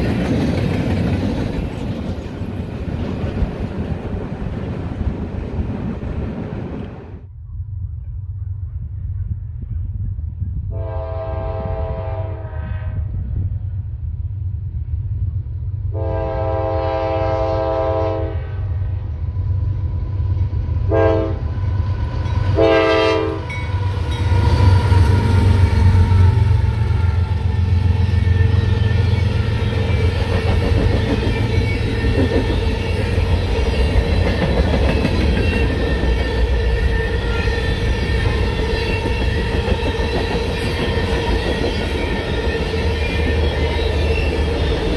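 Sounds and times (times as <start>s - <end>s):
wheels on rails: 0.0s - 7.1s, 23.4s - 44.9s
train engine rumble: 0.0s - 44.9s
locomotive horn blasts: 10.7s - 13.1s, 15.9s - 18.8s, 20.9s - 21.5s, 22.5s - 24.1s.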